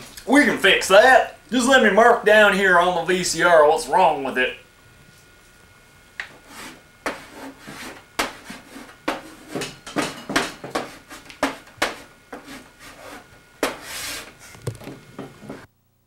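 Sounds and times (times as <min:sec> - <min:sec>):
scraping on plastic: 0:06.2 - 0:15.7.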